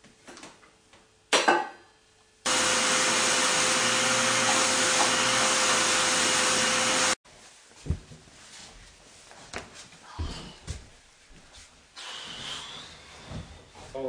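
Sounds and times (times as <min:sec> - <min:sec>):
vacuum cleaner whining: 0:02.5 - 0:07.2.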